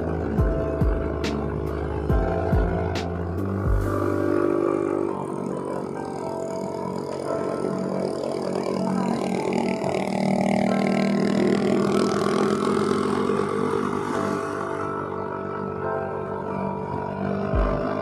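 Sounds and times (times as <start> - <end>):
scooter engine running: 0.0 - 15.8, 16.9 - 18.0.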